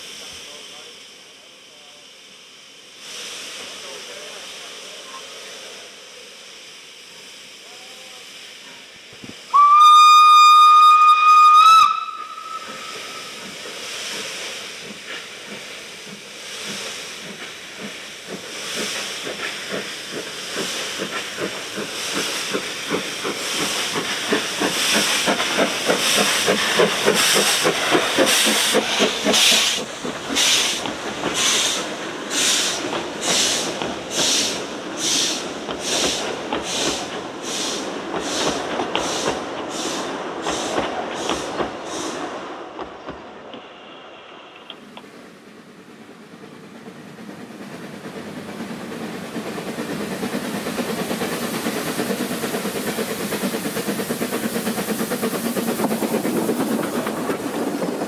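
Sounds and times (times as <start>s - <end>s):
hissing steam: 0.0s - 58.0s
steam locomotive whistle: 9.5s - 13.3s.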